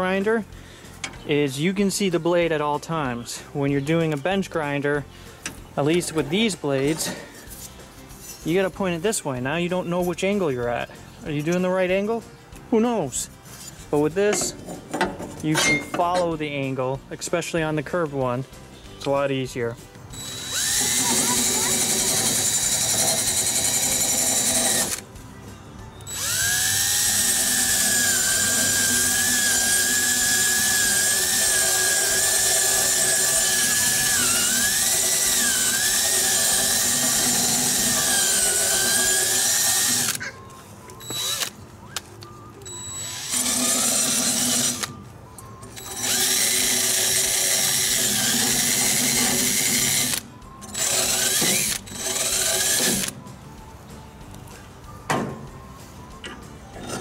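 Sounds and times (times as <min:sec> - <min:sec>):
cordless drill whining: 0:20.2 - 0:25.0, 0:26.0 - 0:40.2, 0:41.0 - 0:41.6, 0:42.6 - 0:45.0, 0:45.7 - 0:53.2.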